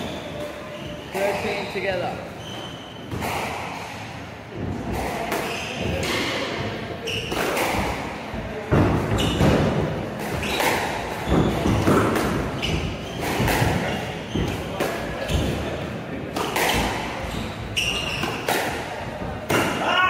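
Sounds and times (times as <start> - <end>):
shoe squeaks on wooden floor: 0.0 - 3.2, 7.0 - 7.4, 9.1 - 9.6, 10.4 - 11.9, 12.5 - 15.7, 16.7 - 18.5
squash ball hitting rackets and walls: 0.0 - 20.0.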